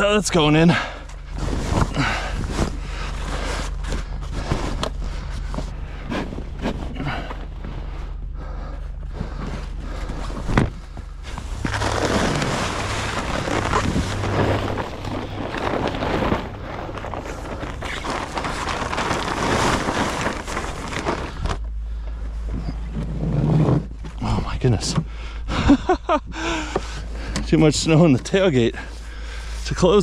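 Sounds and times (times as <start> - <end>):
snow crunching: 11.2 - 21.6
tent fabric dragged through snow: 11.2 - 21.6, 22.6 - 23.9.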